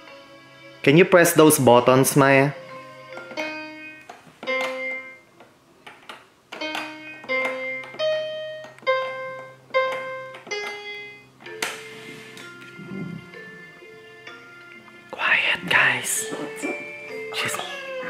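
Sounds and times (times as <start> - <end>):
synthesized toy keyboard notes: 6.5 - 15.1, 15.7 - 18.0.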